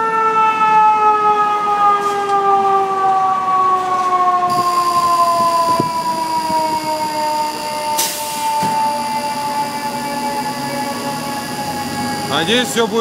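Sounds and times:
fire truck siren winding down: 0.0s - 13.0s
faint high whine: 4.5s - 13.0s.

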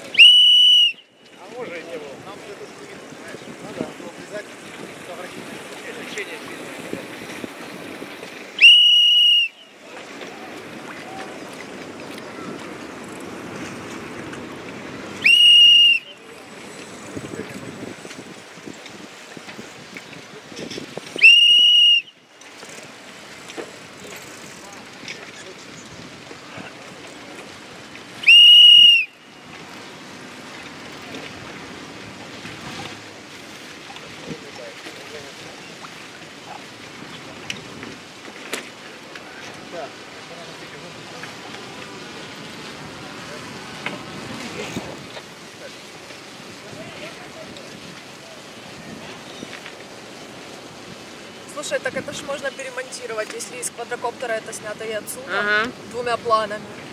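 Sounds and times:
water noise: 0.0s - 56.9s
wind: 0.0s - 56.9s
high whistle blasts: 0.1s - 1.2s, 8.6s - 9.7s, 15.2s - 16.2s, 21.2s - 22.2s, 28.2s - 29.3s.

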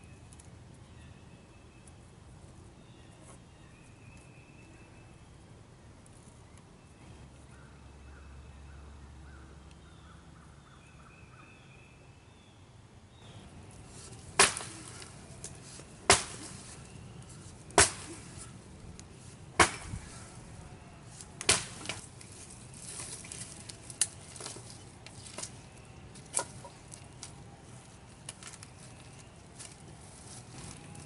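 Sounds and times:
branches cracking and snapping: 13.7s - 31.0s
chopping tool hacking wood: 14.4s - 15.0s, 16.1s - 16.6s, 17.8s - 18.3s, 19.6s - 20.0s, 21.4s - 22.0s.

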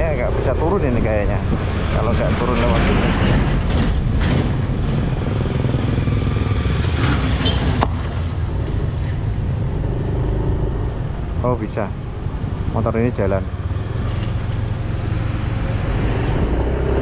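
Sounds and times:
motorized three-wheeler passing: 2.8s - 11.4s
motorcycle engine running: 4.0s - 11.4s.

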